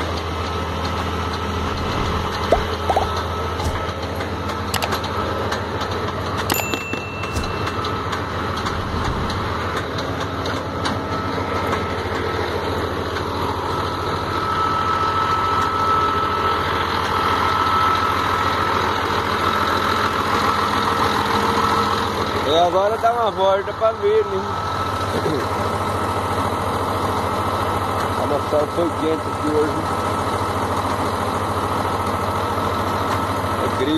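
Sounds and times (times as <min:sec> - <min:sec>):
diesel truck engine running: 0:00.0 - 0:33.9
steady whine: 0:01.2 - 0:18.3.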